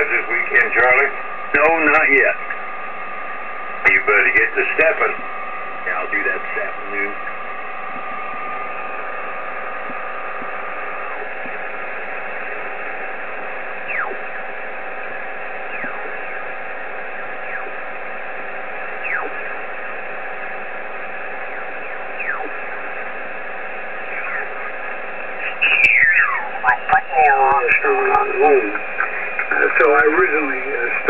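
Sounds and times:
faint steady radio tones: 0:00.0 - 0:31.0
radio static hiss: 0:00.0 - 0:31.0
descending radio whistle: 0:13.8 - 0:14.3, 0:15.6 - 0:16.5, 0:18.9 - 0:19.5, 0:21.4 - 0:22.8, 0:24.1 - 0:24.7, 0:25.4 - 0:29.5.

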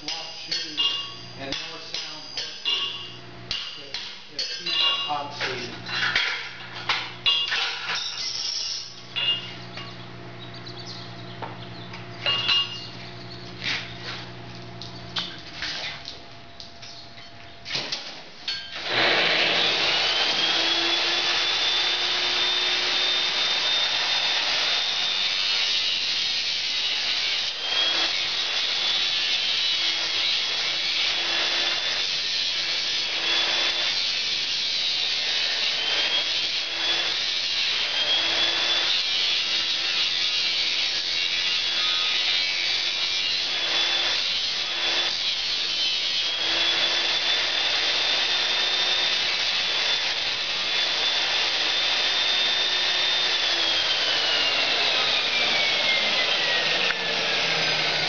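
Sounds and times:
grinder whining: 0:00.0 - 0:16.0, 0:18.5 - 0:58.0
steel grinding on wheel: 0:05.8 - 0:10.0.

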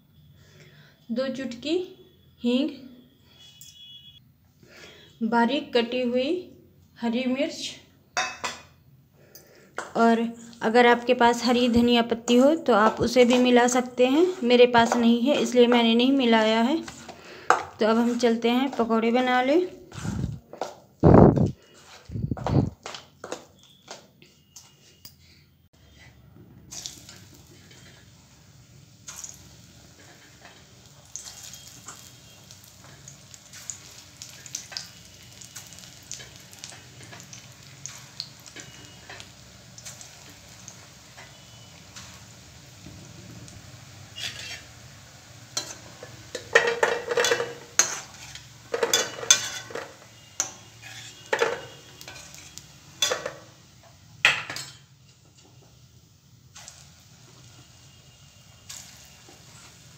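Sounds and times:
spoon clinking and scraping pan: 0:08.2 - 0:08.8, 0:33.6 - 0:40.3, 0:44.1 - 0:44.7, 0:45.5 - 0:53.5, 0:54.3 - 0:55.2
oil sizzling: 0:10.6 - 0:20.2, 0:25.9 - 0:59.9.

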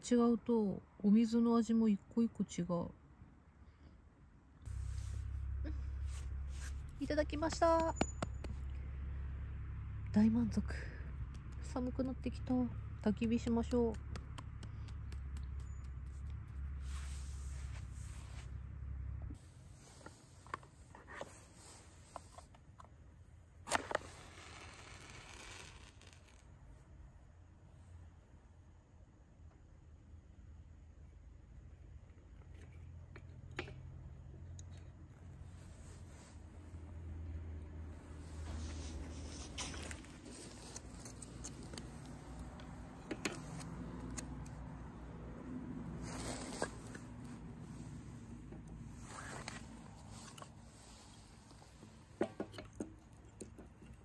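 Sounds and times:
low hum: 0:03.2 - 0:19.7
sharp clacks: 0:07.4 - 0:08.8, 0:13.0 - 0:16.6
firewood and camp gear handled: 0:38.4 - 0:44.7.

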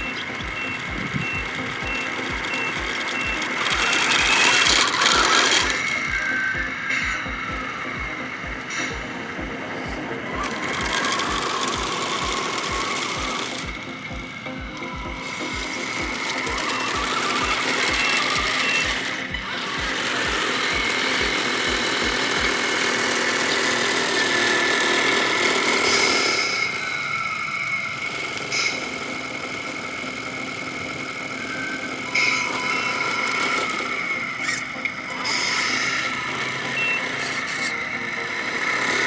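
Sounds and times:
toy truck electric motor whine: 0:00.0 - 0:39.0.

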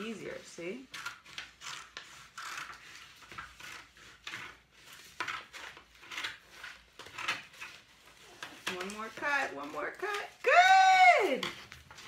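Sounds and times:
scissors snipping paper: 0:00.9 - 0:12.0.

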